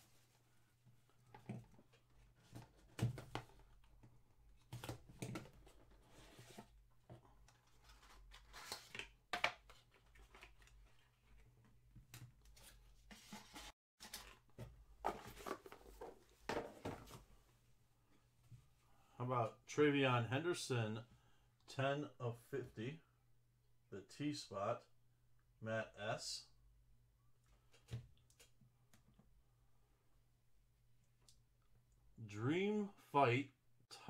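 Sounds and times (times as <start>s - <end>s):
cardboard and plastic rustling: 12.5s - 17.3s.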